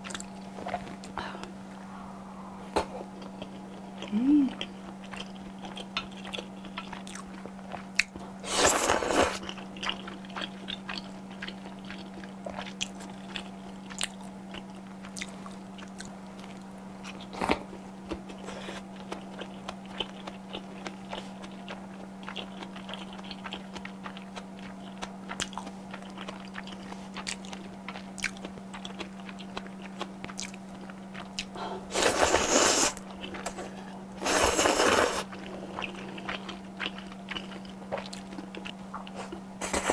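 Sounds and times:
chewing with wet mouth clicks: 0.0 - 1.2, 2.8 - 8.2, 9.3 - 31.6, 33.0 - 33.7, 35.2 - 39.4
steady low hum: 0.0 - 39.9
slurping noodles: 31.9 - 33.0, 34.2 - 35.3.

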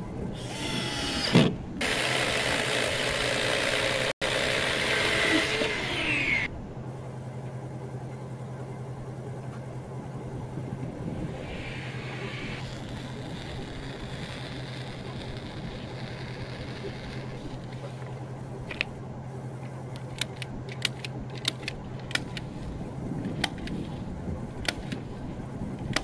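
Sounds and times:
steady low hum: 0.0 - 26.0
electric chainsaw cutting foam panel: 0.4 - 6.5, 11.4 - 17.9
power drill whirring: 0.4 - 6.5, 11.8 - 17.7.

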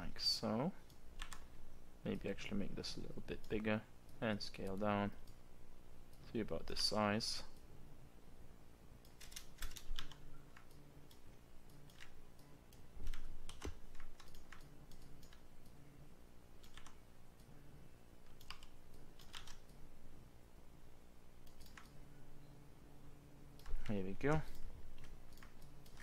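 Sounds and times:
keyboard keys clicking: 9.0 - 11.2, 11.8 - 15.4, 16.6 - 17.5, 18.3 - 19.8.

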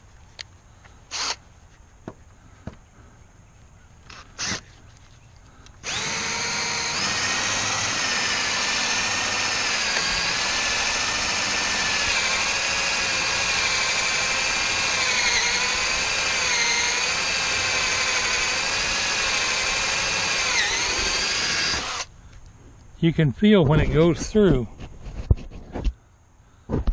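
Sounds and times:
cordless drill cutting wood: 1.1 - 1.4, 4.1 - 4.6, 5.8 - 22.1.

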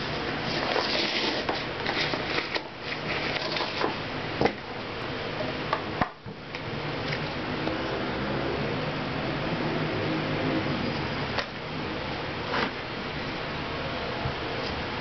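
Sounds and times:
plastic cups rustling and clicking: 0.0 - 4.6.

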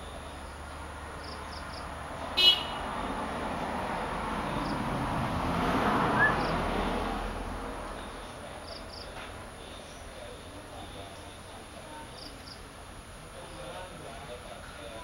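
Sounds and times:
vehicle passing: 0.0 - 11.8.

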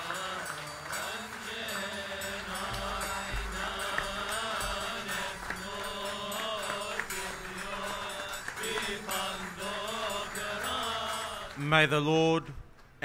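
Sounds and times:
slow melismatic chant: 0.0 - 12.3.

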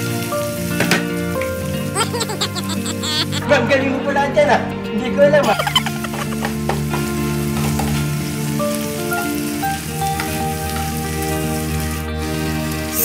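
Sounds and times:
shrimp sizzling in a pan: 0.0 - 2.3, 5.5 - 13.0
background music with held notes: 0.0 - 13.0.

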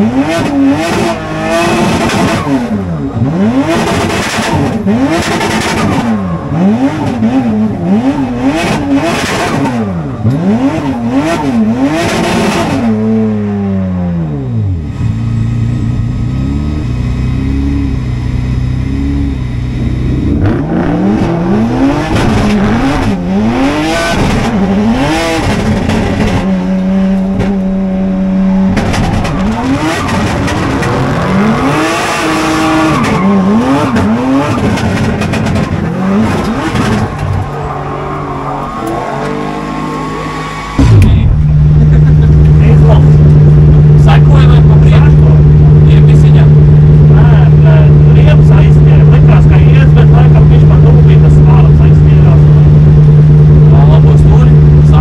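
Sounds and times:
car engine revving: 0.0 - 55.0
rushing noise: 36.0 - 46.0.

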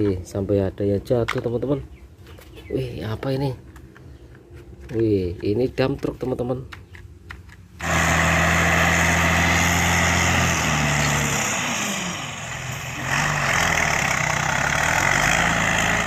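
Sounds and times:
dump truck engine running: 7.8 - 16.0.

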